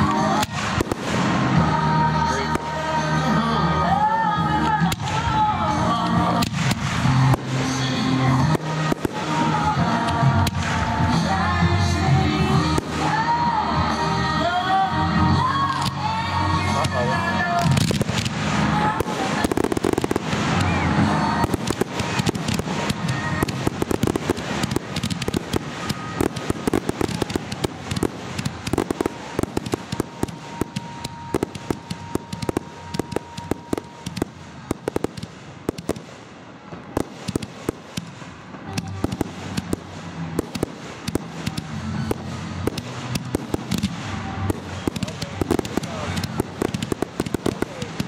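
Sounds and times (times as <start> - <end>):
firework shells bursting: 16.7 - 48.0.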